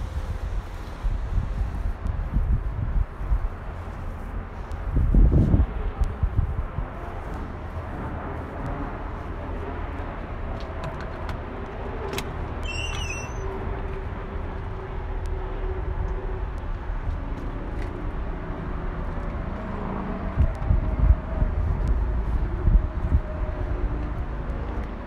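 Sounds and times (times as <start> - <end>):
short high squeak: 12.6 - 13.6.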